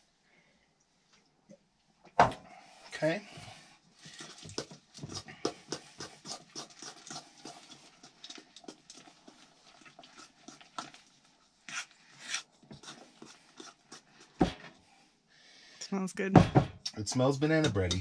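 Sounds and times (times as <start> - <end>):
batter scraping in metal bowl: 4.0 - 14.7.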